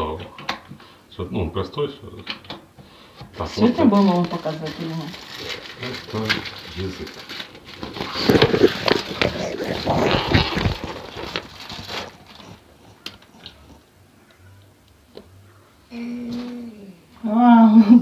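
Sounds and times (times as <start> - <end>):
plastic packaging crinkling: 3.4 - 12.7.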